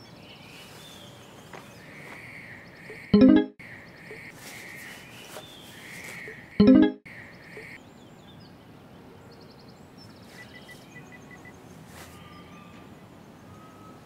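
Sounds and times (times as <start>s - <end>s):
small birds chirping: 0.0s - 3.1s, 3.7s - 6.4s, 9.4s - 12.6s.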